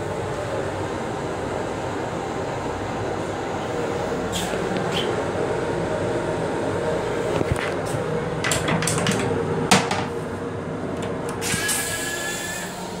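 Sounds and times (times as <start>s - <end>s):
toilet seat clattering: 8.4s - 10.1s
hiss: 11.4s - 13.0s.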